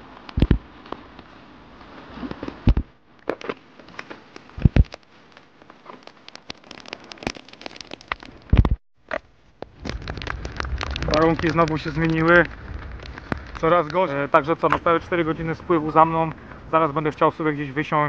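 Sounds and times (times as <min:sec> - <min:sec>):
rain pattering on a kayak: 0:03.8 - 0:08.8, 0:09.6 - 0:17.1
faint rain hiss: 0:09.4 - 0:18.0.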